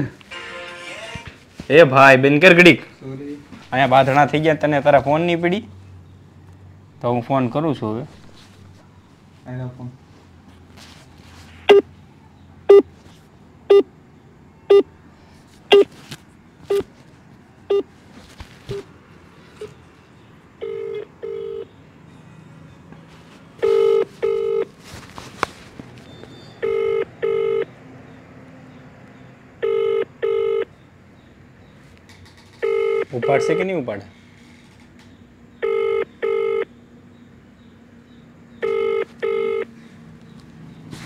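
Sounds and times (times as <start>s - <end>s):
double ringback tone: 20.6s - 21.6s, 23.6s - 24.7s, 26.4s - 27.6s, 29.6s - 30.6s, 32.6s - 33.6s, 35.6s - 36.6s, 38.6s - 39.7s.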